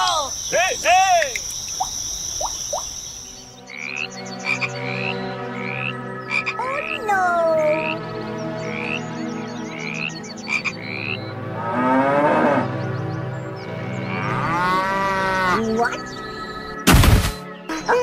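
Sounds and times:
frogs croaking: 0.0s - 16.8s.

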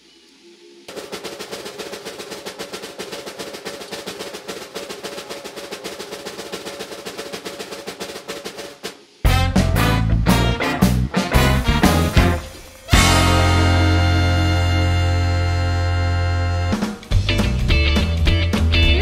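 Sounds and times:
snare drum roll: 0.9s - 18.1s.

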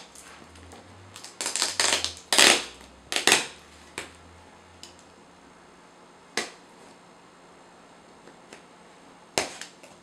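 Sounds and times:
packing tape ripping: 0.0s - 3.6s.

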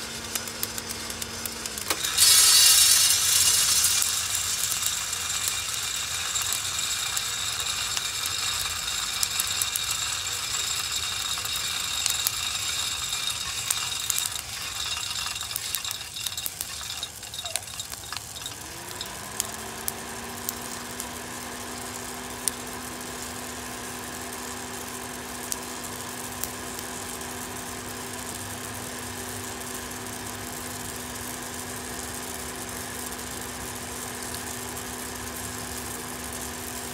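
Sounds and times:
motor hum: 0.0s - 23.9s
coffee roaster clicking rattle: 0.0s - 36.9s.

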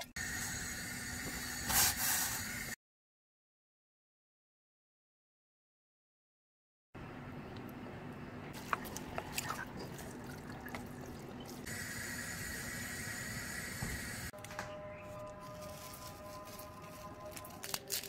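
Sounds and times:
wet stirring of noodles: 8.6s - 11.7s.

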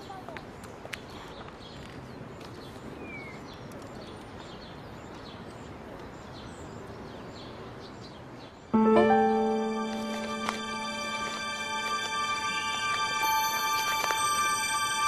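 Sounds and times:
small birds chirping: 0.0s - 8.8s
background hiss: 8.7s - 15.0s.

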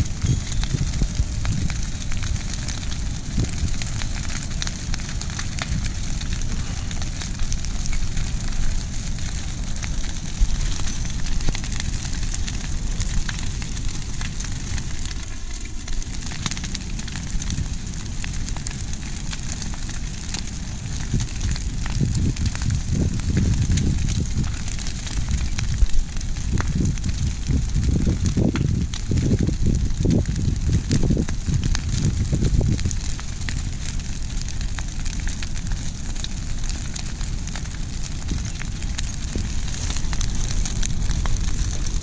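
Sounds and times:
fire crackling and popping: 0.0s - 42.0s
fire low rush: 0.0s - 42.0s.

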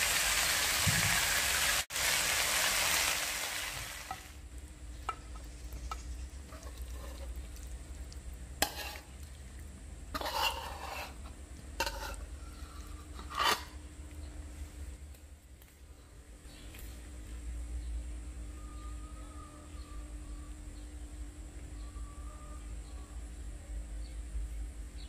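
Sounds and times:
wok sizzling: 0.0s - 12.3s
metal spatula scraping a pan: 5.3s - 7.4s, 8.6s - 9.2s, 10.1s - 13.8s.

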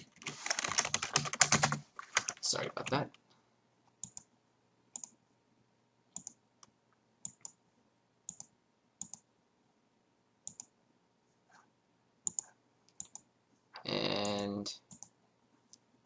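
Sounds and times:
computer mouse clicking: 4.0s - 4.3s, 5.0s - 5.2s, 6.2s - 6.4s, 7.2s - 7.6s, 8.3s - 9.2s, 10.4s - 10.7s, 12.2s - 13.3s, 14.2s - 15.8s.

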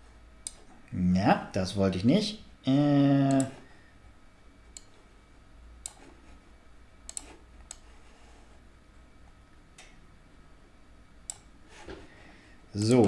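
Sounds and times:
faint room noise: 0.0s - 13.0s
computer mouse clicks: 0.4s - 0.7s, 4.7s - 5.0s, 5.8s - 6.2s, 7.1s - 7.9s, 11.3s - 11.5s.

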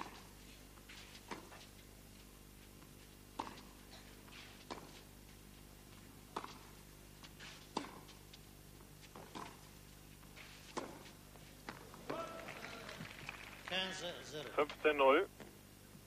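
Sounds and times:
steady low hum: 0.0s - 16.0s
tennis ball hits: 7.7s - 8.2s, 10.7s - 11.1s.

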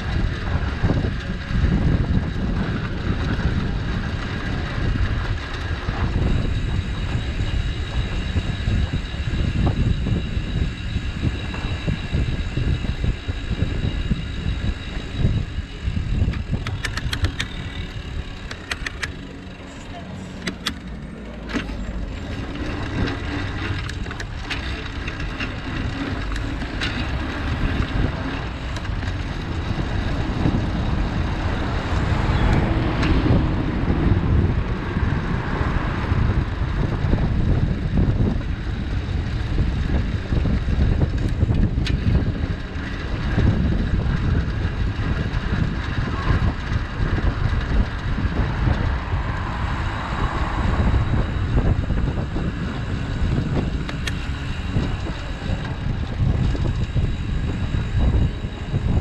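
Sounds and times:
passing traffic: 0.0s - 59.0s
wind and road noise: 0.0s - 59.0s
sharp clicks: 16.3s - 17.7s, 18.4s - 19.2s, 20.4s - 21.8s.

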